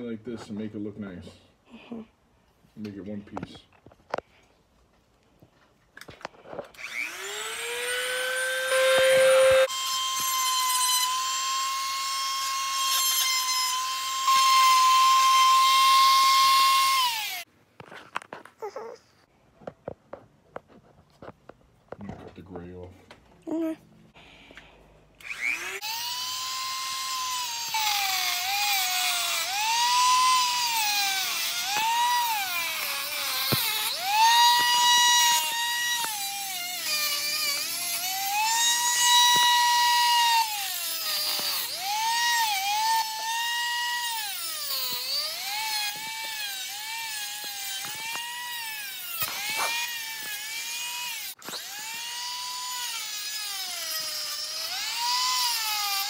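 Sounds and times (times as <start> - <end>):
rotary tool cutoff disc whining: 6.7 - 11.7, 25.2 - 43.3, 44.1 - 56.0.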